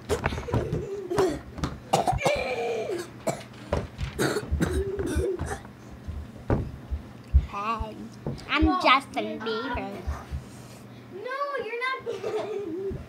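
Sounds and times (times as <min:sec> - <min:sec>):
knocks and bumps: 0:03.7 - 0:08.8.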